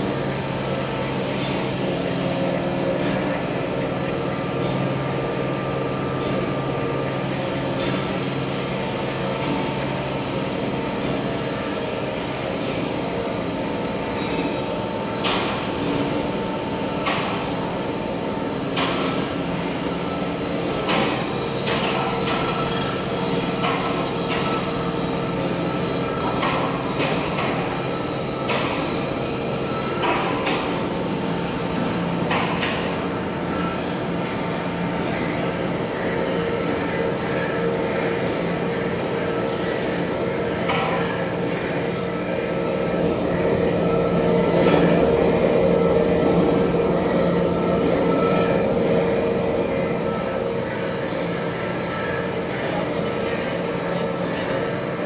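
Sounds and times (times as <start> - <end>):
lathe motor humming: 19.4 - 55.0.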